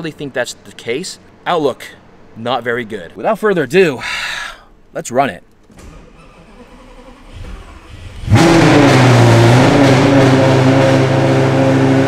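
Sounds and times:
car engine starting and idling: 0:05.6 - 0:12.0.

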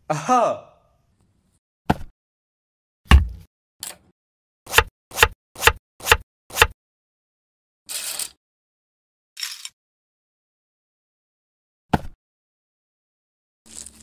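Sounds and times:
knocks on wooden cutting board: 0:03.1 - 0:03.4.

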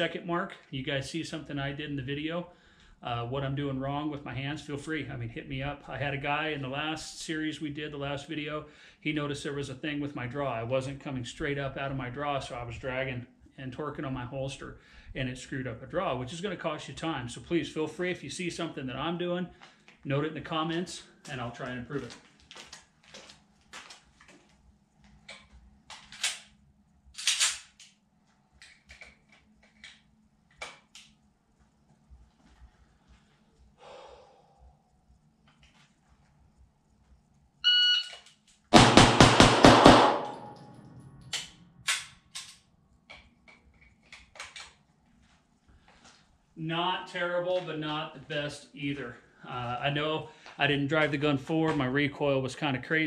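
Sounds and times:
faint clicks and scuffs: 0:20.7 - 0:26.2, 0:27.9 - 0:33.8, 0:35.0 - 0:37.4, 0:43.1 - 0:46.5
shot timer beep: 0:37.6 - 0:38.2
pistol shots: 0:38.7 - 0:42.1.

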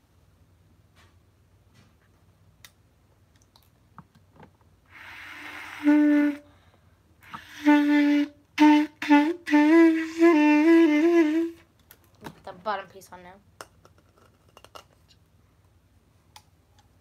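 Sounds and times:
breath rushing through clarinet: 0:04.9 - 0:11.6
low reedy clarinet note: 0:05.0 - 0:06.4, 0:07.2 - 0:11.6.

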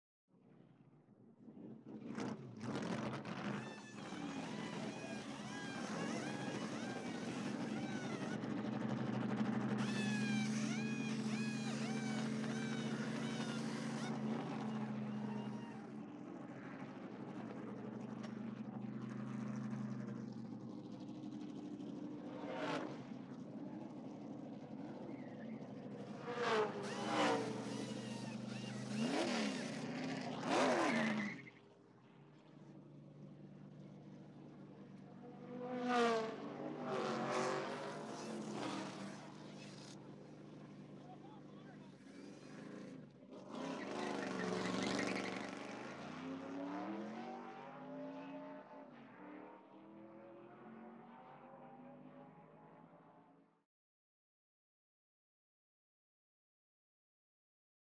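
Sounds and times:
race car engines humming: 0:02.1 - 0:52.4
high falling squeals: 0:09.8 - 0:15.9.

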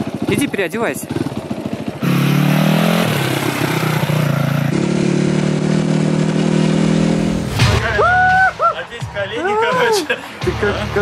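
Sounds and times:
motorcycle engine running: 0:00.0 - 0:07.6.

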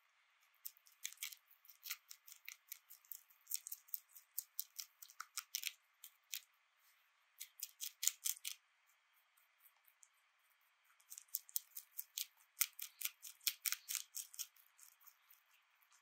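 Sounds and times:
rabbit crunching lettuce: 0:00.4 - 0:16.0.

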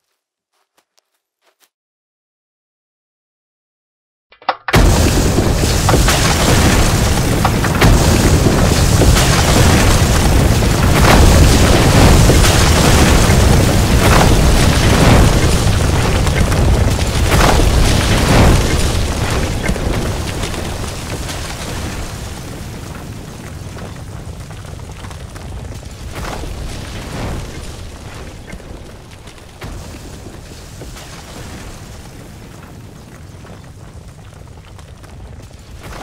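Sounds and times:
deep rumbling roar with crashes: 0:04.8 - 0:22.0.

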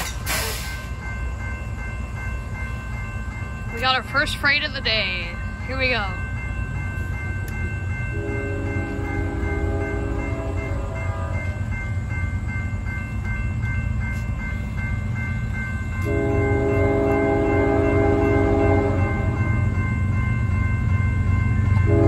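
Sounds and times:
crossing warning bell ringing: 0:00.0 - 0:22.0
train rumble: 0:00.0 - 0:22.0
train air horn blast: 0:08.2 - 0:11.4, 0:16.1 - 0:19.4.

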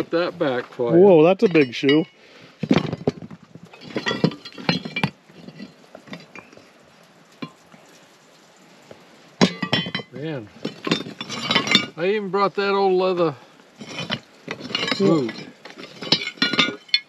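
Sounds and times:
iron horseshoes clinking: 0:01.2 - 0:06.6, 0:09.4 - 0:12.0, 0:13.8 - 0:17.0.

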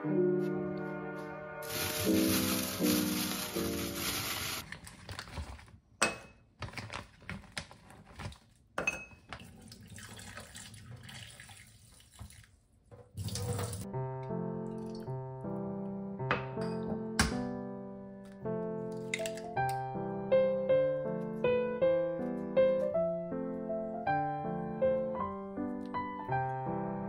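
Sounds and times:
piano background music: 0:00.0 - 0:04.6, 0:13.8 - 0:27.0
hands rinsing under water: 0:01.6 - 0:05.0
tap water running into sink: 0:09.3 - 0:13.9.

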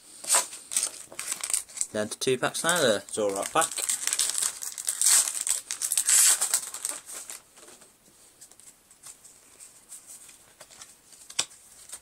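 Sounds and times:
foil wrapper crinkling and tearing: 0:00.3 - 0:02.0, 0:02.6 - 0:07.4
cards rustling and ticking: 0:02.6 - 0:07.8.

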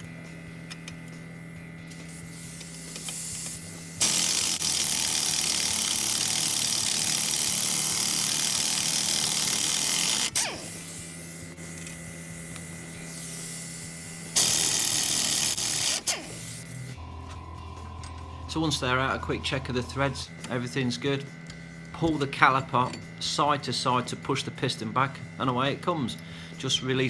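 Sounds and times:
pneumatic impact wrench spinning: 0:01.9 - 0:17.0.

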